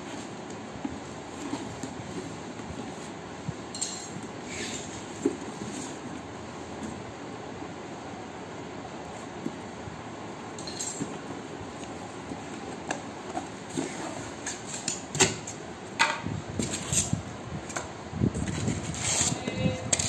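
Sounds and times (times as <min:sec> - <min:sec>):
cardboard scraping and rustling: 0:00.0 - 0:03.2, 0:04.4 - 0:06.2, 0:18.3 - 0:20.0.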